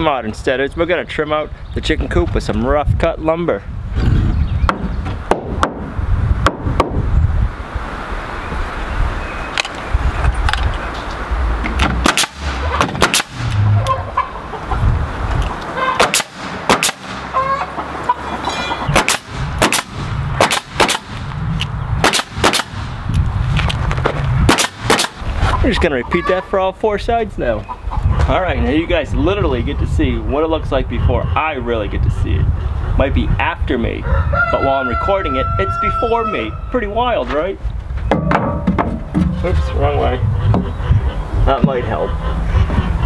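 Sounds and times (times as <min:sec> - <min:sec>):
nail gun firing: 0:11.8 - 0:13.6, 0:16.0 - 0:17.3, 0:18.9 - 0:21.2, 0:22.0 - 0:22.9, 0:24.5 - 0:25.2.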